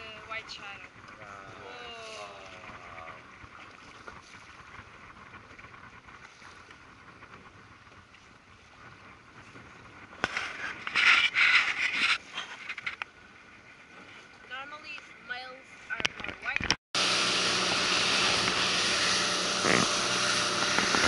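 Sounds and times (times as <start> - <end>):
sea and wind hiss: 17.0 - 21.0.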